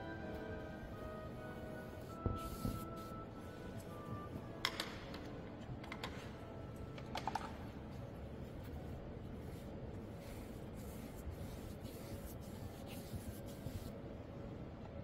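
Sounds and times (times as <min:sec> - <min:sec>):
low room noise: 0:00.0 - 0:15.0
brush rubbing on paper: 0:00.9 - 0:03.2, 0:08.4 - 0:14.0.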